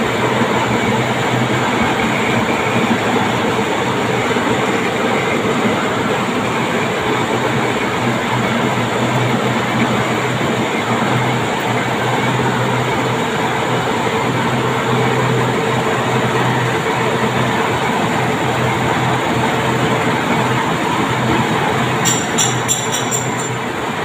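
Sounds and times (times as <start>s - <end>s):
metal lathe running: 18.4s - 24.0s.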